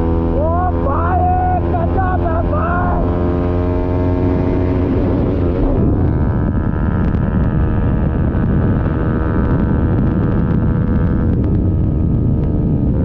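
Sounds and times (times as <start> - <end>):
motorcycle engine running: 0.0 - 13.0
wind on microphone: 3.0 - 13.0.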